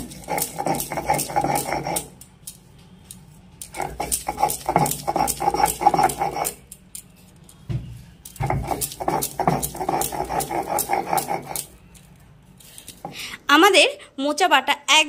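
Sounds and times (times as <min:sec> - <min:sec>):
stone roller grinding on stone slab: 0:00.0 - 0:02.2, 0:03.7 - 0:06.6, 0:08.4 - 0:11.8.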